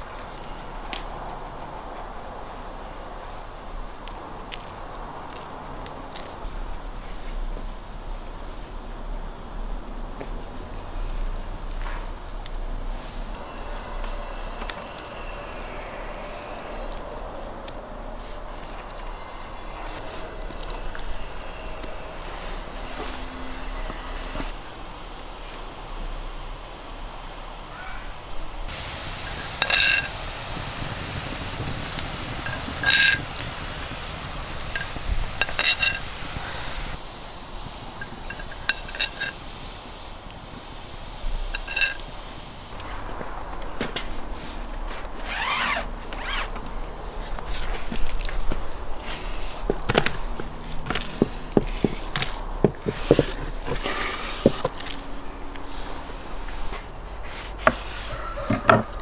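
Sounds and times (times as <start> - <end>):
liquid boiling and hissing: 0.0 - 59.0
metal spoon clinking on pot: 29.6 - 30.1, 34.7 - 36.1, 38.0 - 39.4, 41.5 - 42.0.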